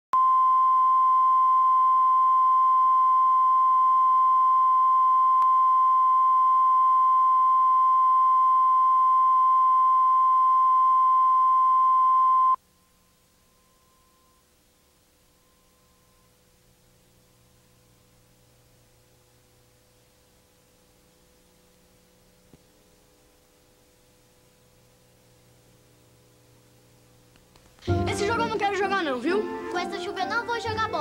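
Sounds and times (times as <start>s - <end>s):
steady test tone: 0.2s - 19.1s.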